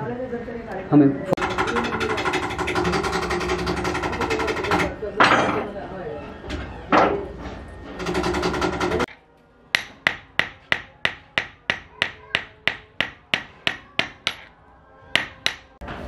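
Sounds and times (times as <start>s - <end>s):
hammer striking metal on anvil: 9.7s - 14.5s, 15.2s - 15.8s.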